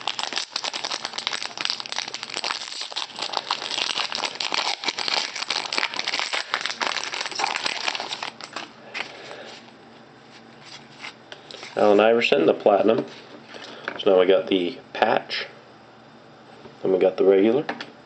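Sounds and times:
foil wrapper crinkling: 0.0s - 8.7s
faint handling sounds: 8.0s - 12.1s.

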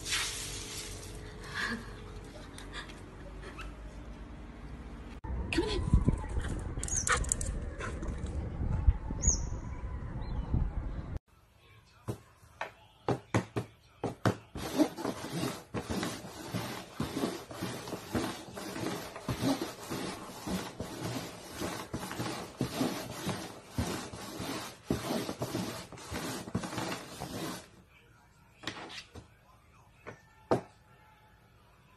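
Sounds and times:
plastic cups scraping on cardboard: 14.5s - 27.7s.

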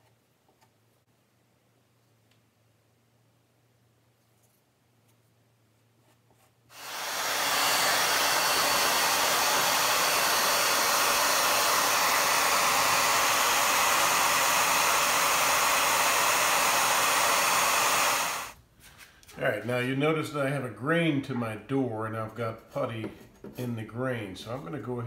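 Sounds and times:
hair dryer running: 6.7s - 18.6s.

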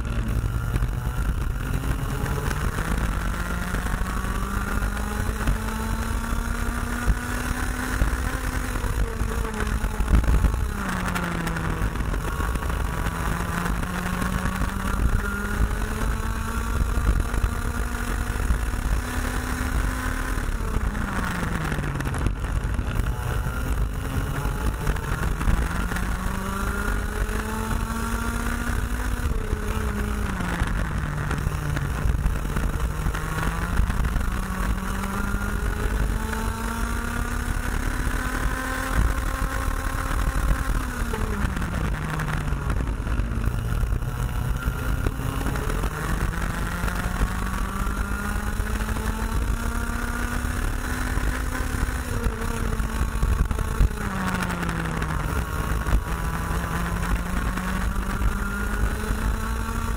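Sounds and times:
kart engine revving: 0.0s - 59.9s.

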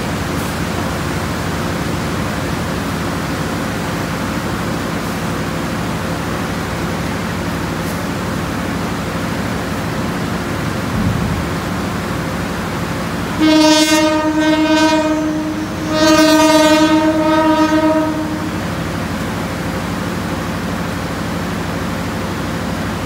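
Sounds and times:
diesel engine rumble: 0.0s - 13.4s, 15.2s - 23.0s
locomotive air horn blasts: 13.3s - 18.9s.

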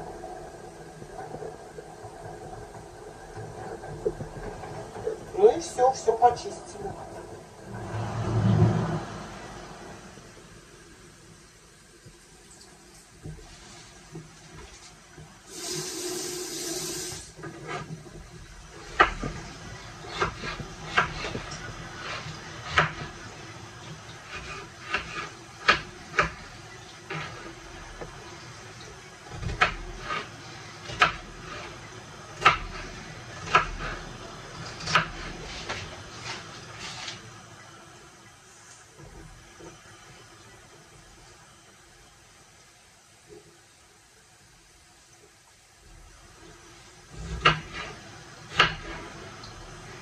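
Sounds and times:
kitchen tap running: 15.5s - 17.4s.

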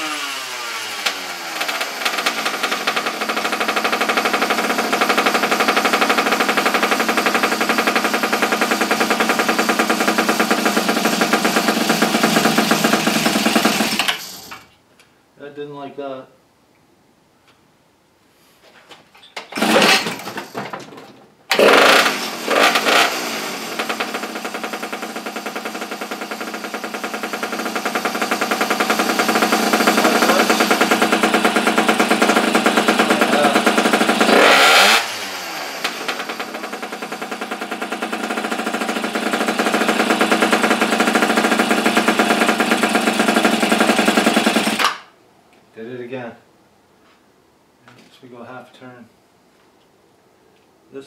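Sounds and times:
small motorbike engine revving: 0.0s - 14.6s, 19.6s - 20.4s, 21.5s - 45.1s.

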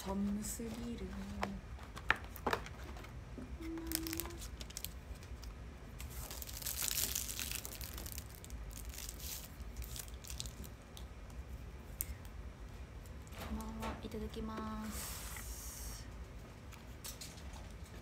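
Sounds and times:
snack wrapper crinkling: 3.8s - 11.1s.

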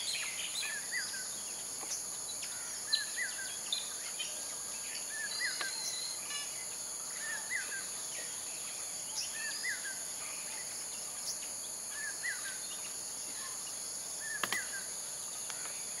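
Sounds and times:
high-pitched insect chorus: 0.0s - 16.0s
faint click: 14.4s - 14.8s.

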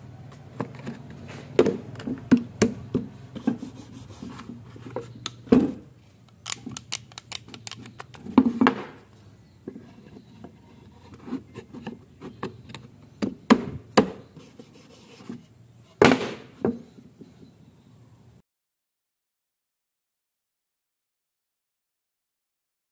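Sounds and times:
wood scraping: 0.3s - 17.5s.

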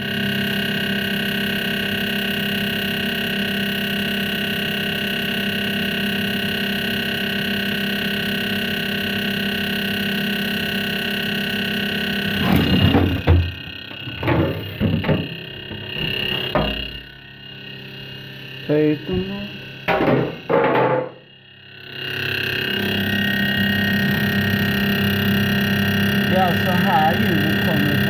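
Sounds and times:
fridge humming with high whine: 0.0s - 28.0s
rustles and knocks: 12.4s - 16.9s.

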